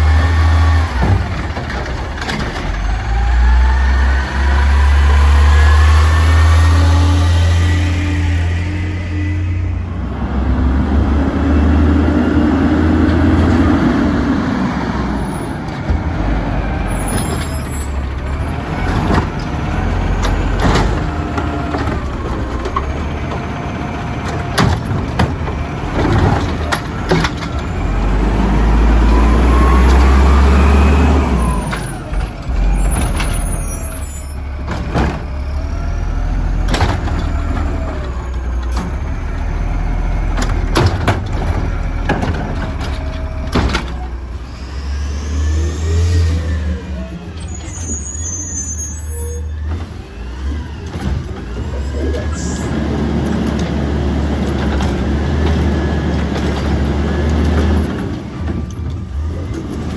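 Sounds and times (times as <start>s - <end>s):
garbage truck engine revving: 0.0s - 59.9s
cart clunks and bangs: 0.9s - 2.9s, 20.2s - 23.5s, 24.2s - 27.8s, 34.6s - 35.6s, 36.6s - 37.8s, 40.3s - 44.2s.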